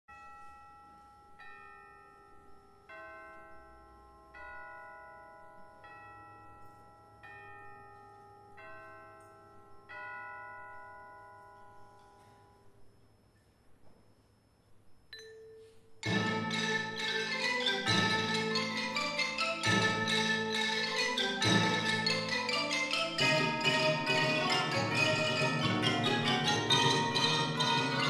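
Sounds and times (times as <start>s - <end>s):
tubular bells ringing chords: 15.2s - 28.0s.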